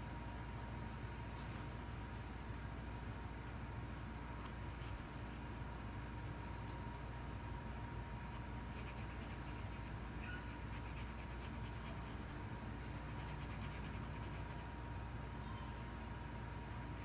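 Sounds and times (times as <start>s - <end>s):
low hum with high tone: 0.0s - 17.0s
marker scratching on foam: 4.7s - 7.0s, 8.2s - 14.9s.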